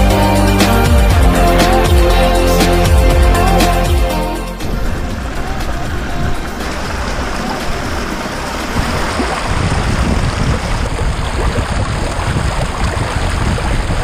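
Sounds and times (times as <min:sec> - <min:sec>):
stream splashing over rocks: 0:06.6 - 0:14.0.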